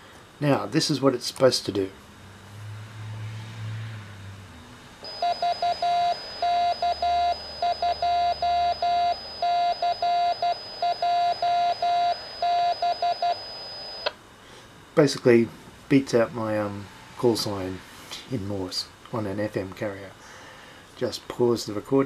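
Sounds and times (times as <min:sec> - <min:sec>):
morse code tone over radio: 0:05.1 - 0:14.1.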